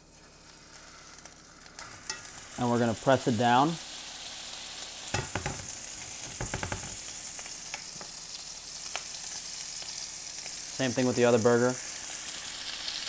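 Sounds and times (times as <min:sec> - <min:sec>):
burger patty sizzling in oil: 0:00.0 - 0:13.0
sharp knocks: 0:05.2 - 0:05.7, 0:06.4 - 0:07.0.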